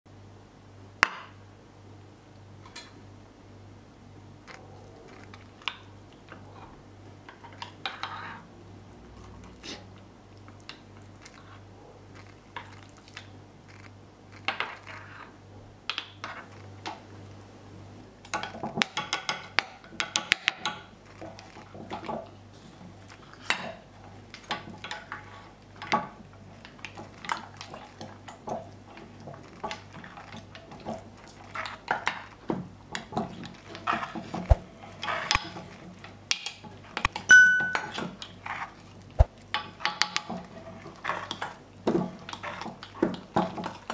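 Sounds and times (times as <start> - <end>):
metal spoon clinking on glass jar: 37.3 - 38.0.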